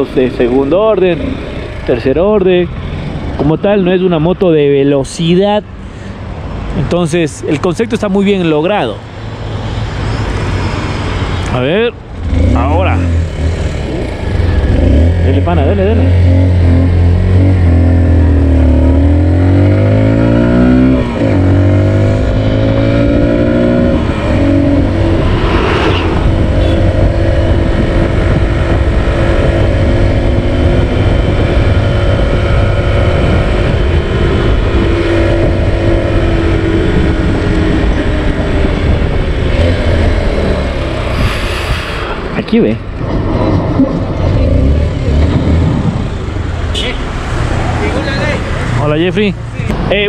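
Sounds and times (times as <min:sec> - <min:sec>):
motorcycle engine accelerating: 0:12.0 - 0:49.0.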